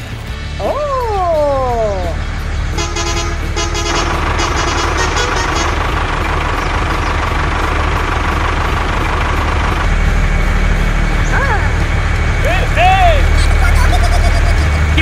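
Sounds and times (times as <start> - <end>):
truck engine running: 0.0 - 15.0
horn tooting: 2.7 - 6.3.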